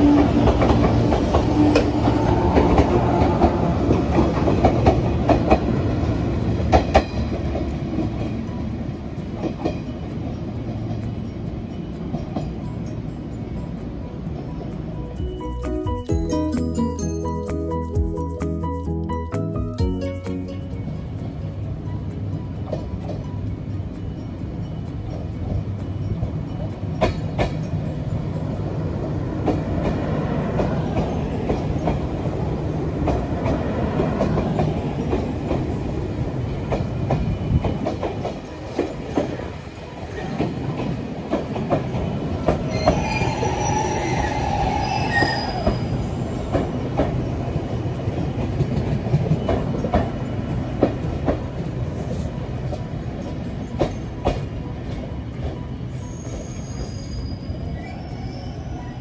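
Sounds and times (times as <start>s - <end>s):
train wheels clicking over rail joints: 0.0s - 15.9s, 19.8s - 57.8s
high-pitched wheel squeal: 42.7s - 46.4s, 55.9s - 59.0s.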